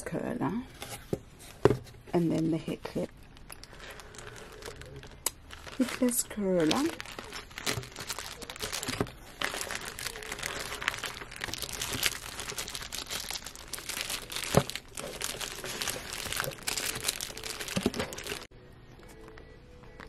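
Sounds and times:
plastic bag crinkling: 0:03.0 - 0:18.5
sharp plastic crack: 0:04.8 - 0:18.5.

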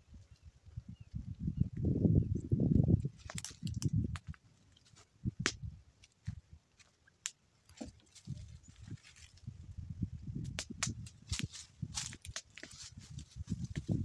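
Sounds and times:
footsteps on dry leaves: 0:11.2 - 0:14.0.

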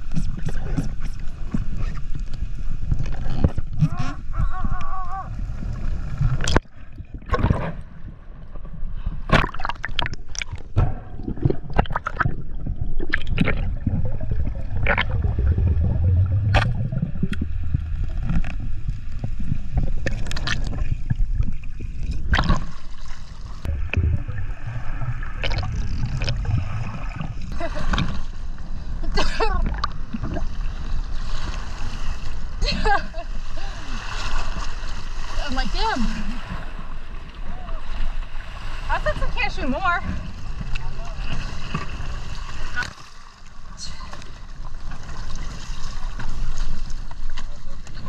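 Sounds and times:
underwater rumble of water: 0:00.0 - 0:48.0
bubbling: 0:09.3 - 0:31.1.

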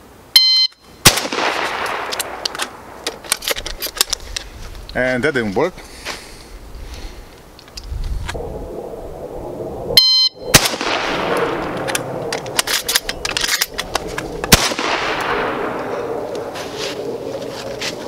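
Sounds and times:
shot timer beep: 0:00.4 - 0:00.8, 0:10.0 - 0:10.4
shotgun shots with echo: 0:01.1 - 0:02.4, 0:10.5 - 0:11.7, 0:14.5 - 0:15.8
shells clicking into gun: 0:01.8 - 0:04.4, 0:11.4 - 0:14.3.

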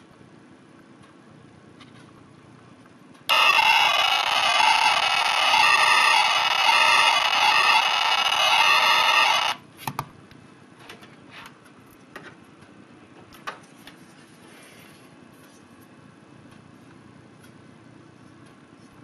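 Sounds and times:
harsh electronic synthesizer buzz: 0:03.3 - 0:09.6.

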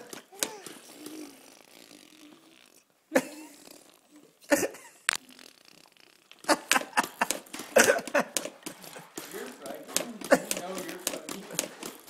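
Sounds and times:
baby blowing raspberries: 0:00.0 - 0:09.6.

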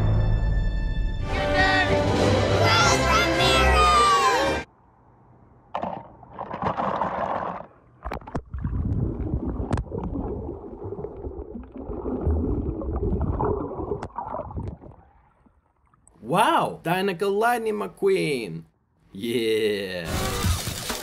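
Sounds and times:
water splash: 0:05.7 - 0:16.0
underwater gurgling and sloshing: 0:06.3 - 0:16.1.

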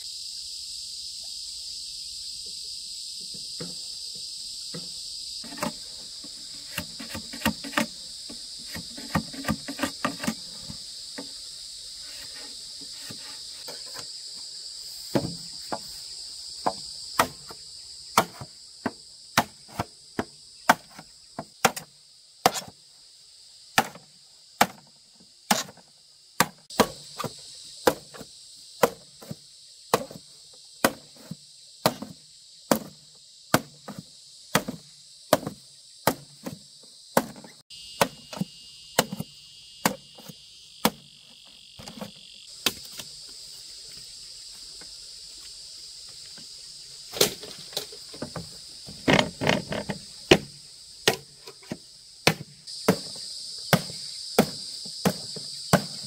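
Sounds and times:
insects chirring: 0:00.0 - 0:56.0
blade chopping: 0:18.2 - 0:18.5.

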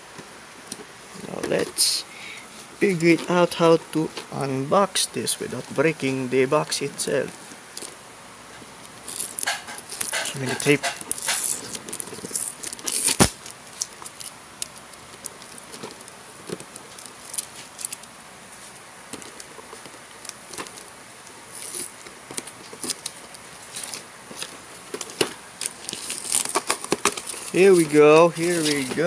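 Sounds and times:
small clicks and scrapes: 0:07.7 - 0:29.0
fingernails scratching packing tape: 0:09.0 - 0:14.8, 0:21.5 - 0:24.5, 0:25.7 - 0:27.6.

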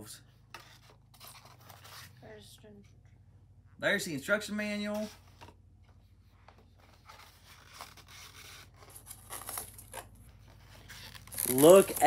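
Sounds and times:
cardboard and paper rustling: 0:00.5 - 0:02.2, 0:04.9 - 0:12.0.

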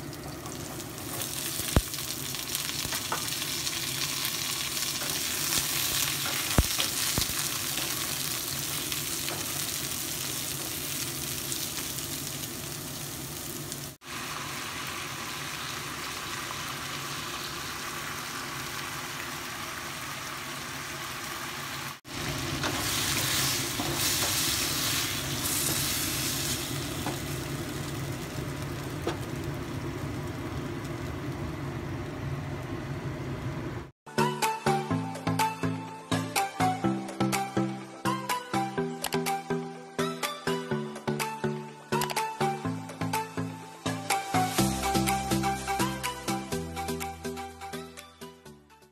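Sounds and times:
wooden spatula stir-frying: 0:00.0 - 0:31.7
vegetables sizzling in hot oil: 0:00.0 - 0:33.0, 0:43.8 - 0:46.0.

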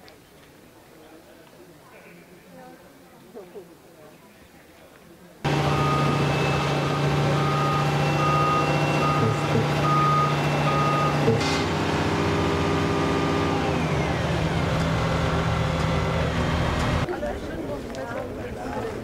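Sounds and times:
reversing alarm beeping: 0:05.5 - 0:11.4
heavy construction machinery running: 0:05.5 - 0:17.1.

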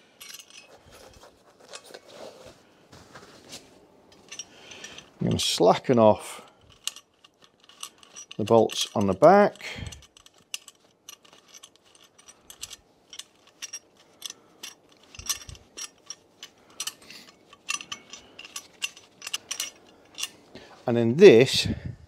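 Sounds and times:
metal parts knocking: 0:00.2 - 0:00.8, 0:06.6 - 0:20.4.

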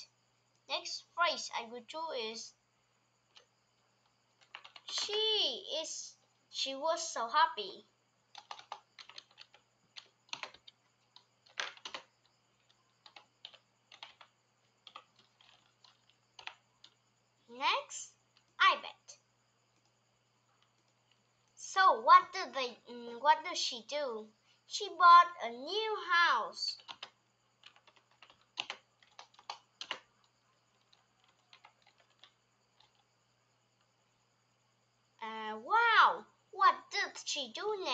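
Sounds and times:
typing on a computer keyboard: 0:03.3 - 0:03.5, 0:04.4 - 0:05.2, 0:08.3 - 0:17.0, 0:26.8 - 0:33.1.

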